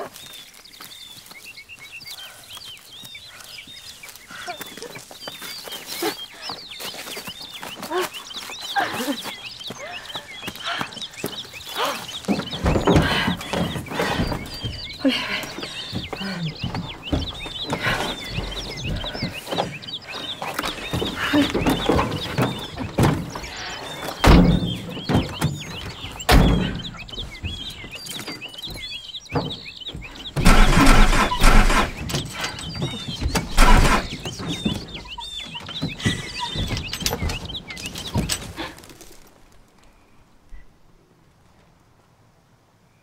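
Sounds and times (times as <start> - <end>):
birds chirping: 0.0 - 42.0
heavy thuds and crashes: 30.3 - 32.5, 33.1 - 34.9.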